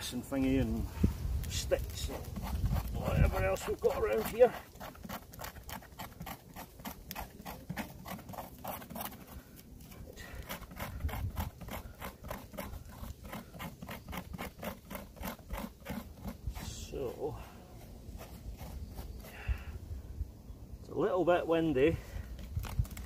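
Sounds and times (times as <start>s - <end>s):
knife scraping wood: 1.4s - 19.4s.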